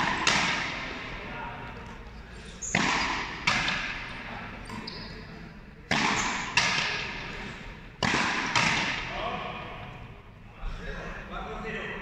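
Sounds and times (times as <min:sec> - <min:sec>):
ball hitting front wall: 0:00.0 - 0:00.8, 0:02.8 - 0:04.1, 0:05.9 - 0:07.1, 0:08.0 - 0:09.1
racket striking rubber ball: 0:00.0 - 0:01.2, 0:02.6 - 0:04.9, 0:05.9 - 0:07.3, 0:08.0 - 0:09.1.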